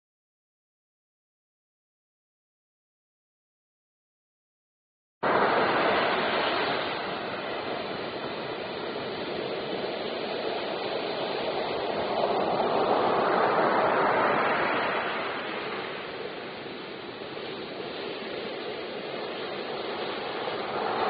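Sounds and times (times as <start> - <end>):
waves breaking: 5.2 - 21.0.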